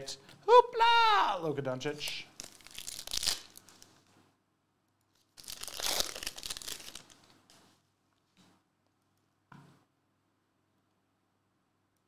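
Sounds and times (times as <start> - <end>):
foil wrapper crinkling and tearing: 2.0 - 4.0, 5.2 - 7.4.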